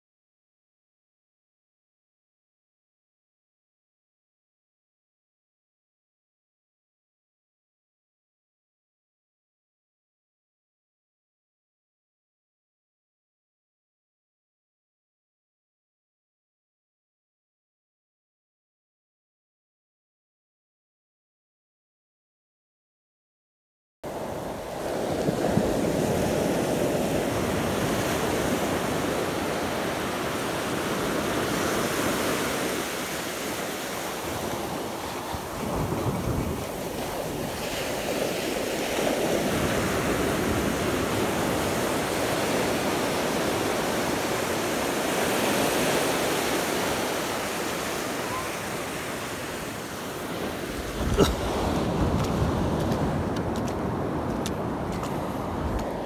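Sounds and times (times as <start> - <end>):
surf breaking on beach: 24.1 - 56.0
wind buffeting microphone: 24.1 - 56.0.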